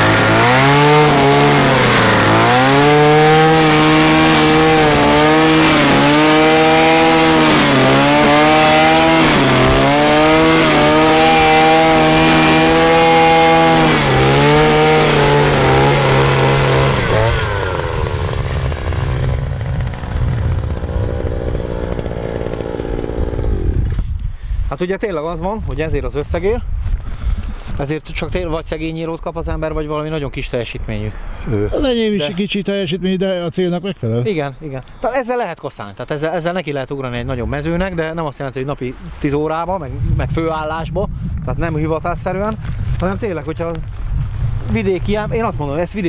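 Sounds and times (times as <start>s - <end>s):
brush cutter engine: 0.0s - 24.2s.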